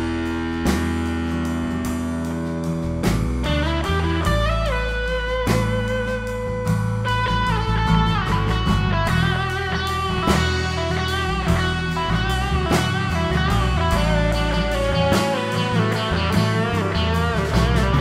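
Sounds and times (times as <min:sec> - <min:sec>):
bass line: 0:00.0 - 0:18.0
drums: 0:00.0 - 0:18.0
electric guitar melody: 0:00.0 - 0:18.0.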